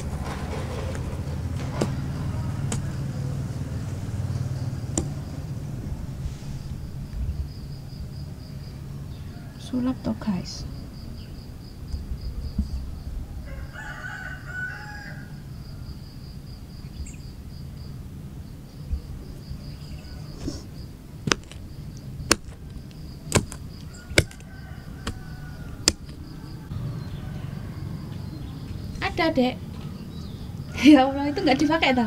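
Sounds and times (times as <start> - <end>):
insects chirping: 0.0 - 32.0
rooster crowing: 9.0 - 10.5, 13.2 - 16.0, 23.8 - 28.2, 30.6 - 32.0
sharp clicks: 25.8 - 26.2.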